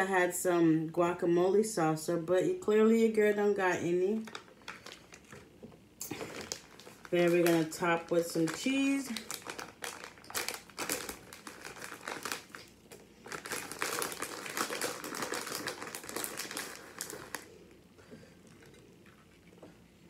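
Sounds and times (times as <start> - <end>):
plastic bag crinkling: 4.2 - 17.8.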